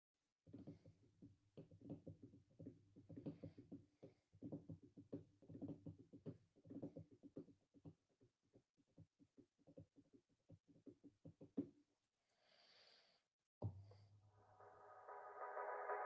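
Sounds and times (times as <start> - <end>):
soft knocks and taps: 0.5 - 11.8.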